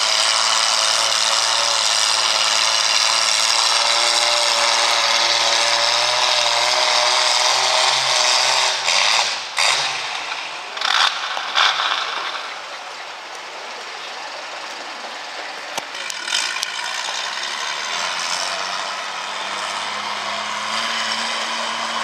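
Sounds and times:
tractor engine under load: 0.0 - 22.0.

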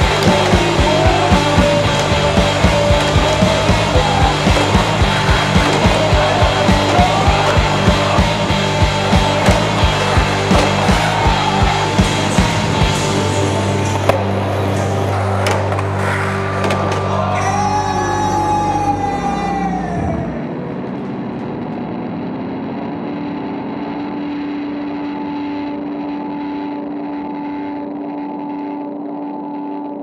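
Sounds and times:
skateboard clacks: 0.0 - 13.1, 13.9 - 17.5
music with steady bass: 0.0 - 15.8.

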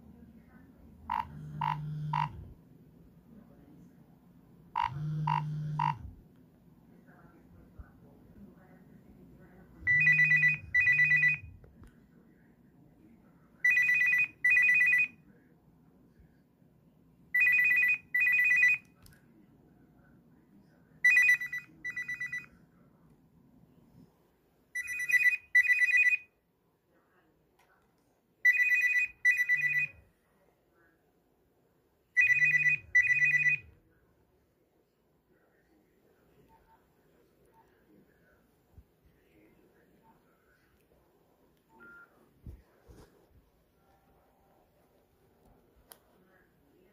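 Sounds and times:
mobile phone ringtone: 1.1 - 2.4, 4.8 - 6.1, 9.9 - 11.5, 13.6 - 15.2, 17.4 - 18.8, 21.0 - 22.5, 24.8 - 26.3, 28.4 - 30.0, 32.2 - 33.7.

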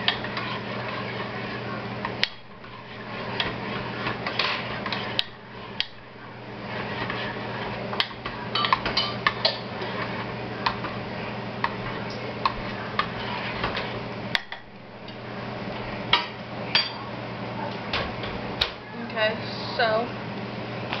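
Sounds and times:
spoon clinking and scraping pot: 0.0 - 6.0, 6.7 - 11.0
steady low hum: 0.0 - 21.0.

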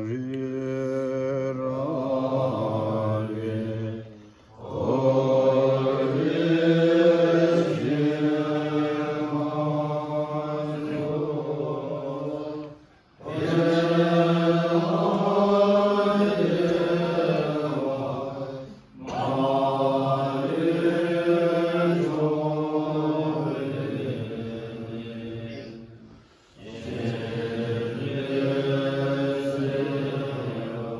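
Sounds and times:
monks chanting in unison: 0.0 - 30.9.

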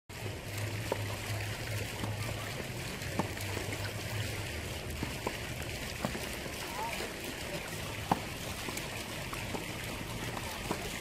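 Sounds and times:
steady outdoor hiss: 0.1 - 11.0
racket hitting tennis ball: 6.0 - 6.2, 8.0 - 8.3, 10.3 - 10.9.

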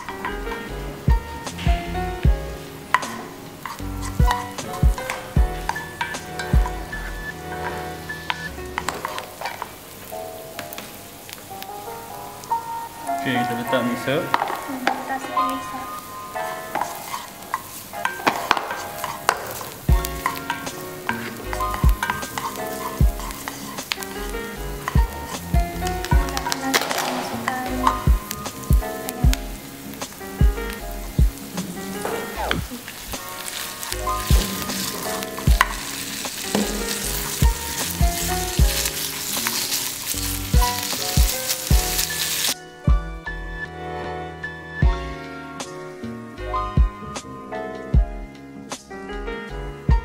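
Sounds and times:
onion sizzling in oil: 0.0 - 42.6
background music: 0.0 - 50.0
wooden spatula stirring: 7.6 - 9.8, 16.6 - 42.6
wooden spoon clicking on pan: 16.8 - 24.2, 26.2 - 28.0.

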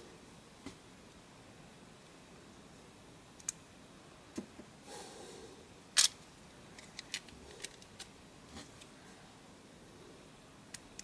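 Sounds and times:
plastic parts clicking: 6.8 - 8.1.

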